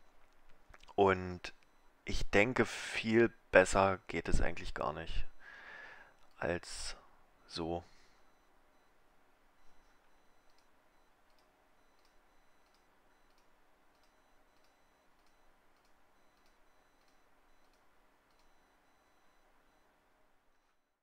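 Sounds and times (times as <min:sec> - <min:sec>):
faint high ticks: 0:10.4 - 0:10.7, 0:11.3 - 0:18.6.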